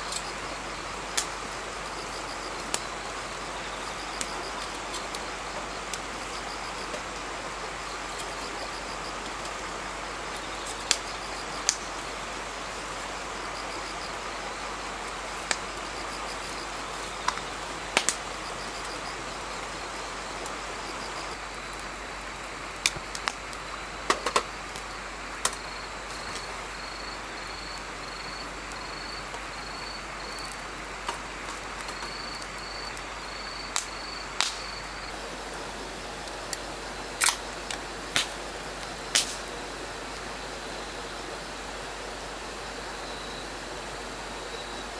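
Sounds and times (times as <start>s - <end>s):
fire crackling and popping: 0.0s - 7.3s, 8.0s - 12.1s, 15.1s - 18.9s, 22.7s - 23.5s, 33.7s - 44.9s
insects chirping: 0.0s - 21.8s, 23.7s - 30.6s, 31.9s - 44.9s
steady rushing background: 35.1s - 44.9s.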